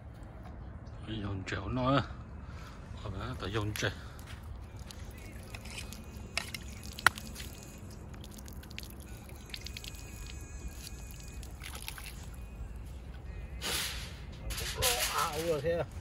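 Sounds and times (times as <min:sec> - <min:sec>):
water pouring and splashing: 0:04.1 - 0:12.6.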